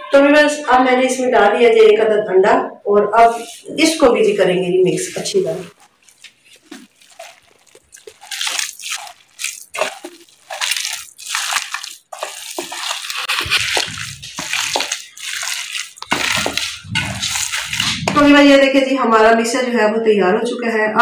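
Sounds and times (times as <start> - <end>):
hands squelching minced meat: 5.0 - 18.4.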